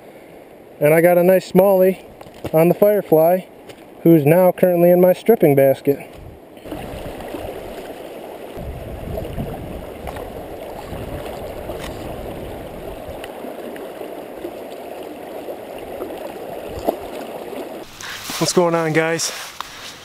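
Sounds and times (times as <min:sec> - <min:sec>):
river rushing and gurgling: 0:05.8 - 0:20.0.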